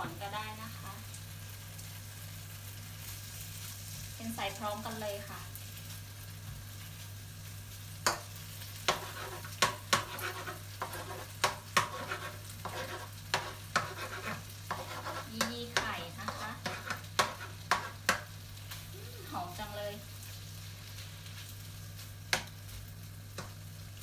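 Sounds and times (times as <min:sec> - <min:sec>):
food sizzling: 0:00.0 - 0:24.0
metal spatula scraping a wok: 0:08.8 - 0:18.2.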